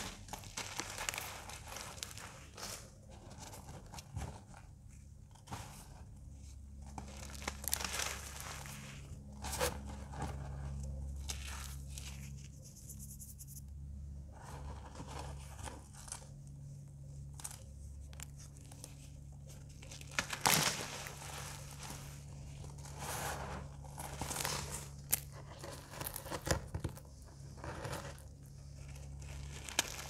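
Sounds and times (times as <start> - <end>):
low steady hum: 0.0 - 30.0
dry cornstarch crunching: 7.0 - 9.3, 28.8 - 30.0.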